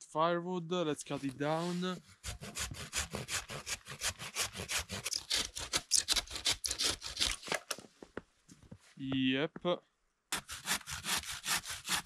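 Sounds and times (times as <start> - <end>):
hand saw cutting wood: 1.4 - 7.7, 10.3 - 12.0.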